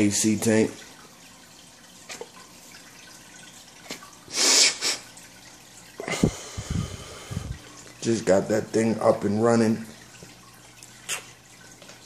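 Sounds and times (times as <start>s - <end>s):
aquarium water trickling: 0.0s - 12.0s
person blowing breath: 6.0s - 7.6s.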